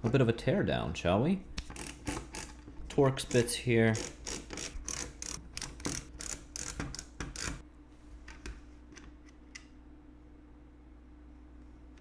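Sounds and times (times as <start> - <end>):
faint steady hum: 0.0 - 12.0
screwdriver clicking: 4.0 - 7.6.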